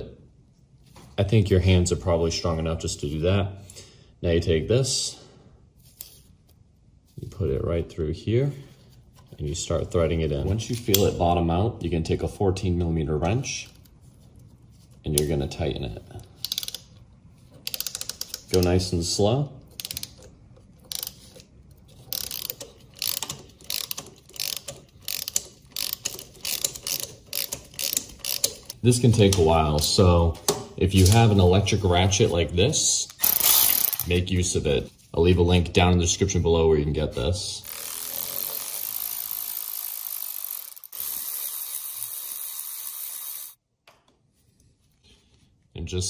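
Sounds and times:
hand ratchet clicking: 16.4s - 17.0s, 17.6s - 18.8s, 19.8s - 29.5s, 33.1s - 34.1s, 37.7s - 43.6s.

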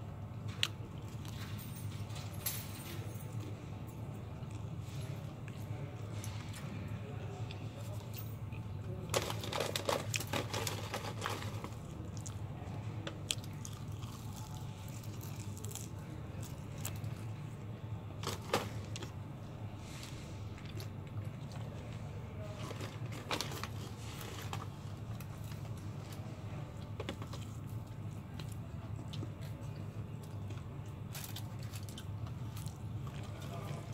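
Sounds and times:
steady low hum: 0.0s - 33.9s
paper packaging crinkling: 9.1s - 12.1s, 18.2s - 19.1s, 22.4s - 26.2s.

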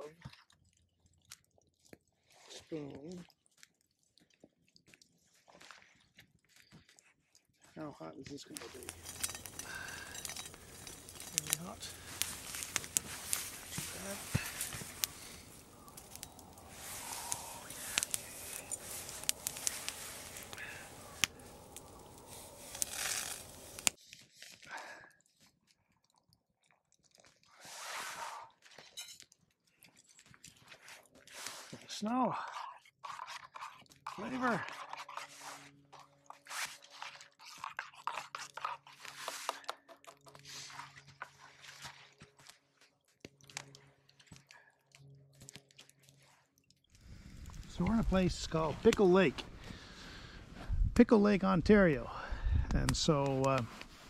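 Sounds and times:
crunching snow and rustling clothing: 1.7s - 25.7s, 27.4s - 39.7s, 40.3s - 54.0s
campfire crackling: 6.4s - 54.0s
fire snaps and pops: 8.3s - 27.4s, 46.9s - 54.0s.

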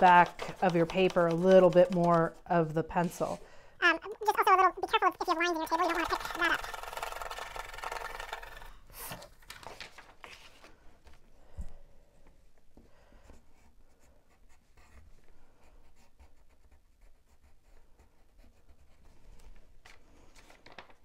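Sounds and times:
pencil scratching on paper: 0.0s - 3.4s, 4.0s - 9.1s, 13.3s - 19.5s.

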